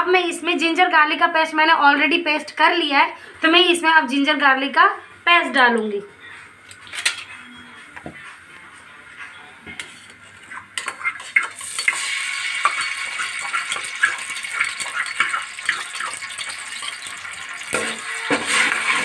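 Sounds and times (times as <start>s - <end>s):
metal spoon scraping pot: 9.7s - 19.0s
paste sizzling in hot oil: 10.8s - 19.0s.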